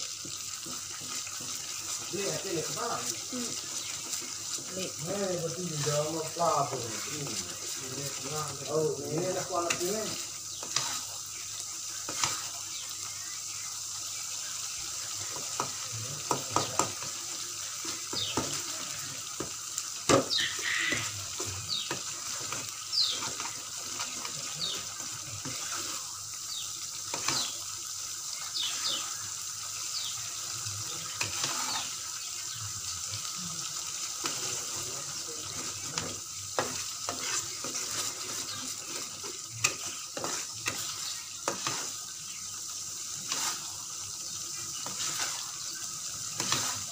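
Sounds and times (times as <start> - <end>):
chili paste sizzling in wok: 0.0 - 46.9
metal spoon scraping pan: 9.6 - 11.2, 12.1 - 12.6, 31.1 - 31.9, 35.6 - 42.0, 43.2 - 43.7, 44.8 - 45.5, 46.4 - 46.9.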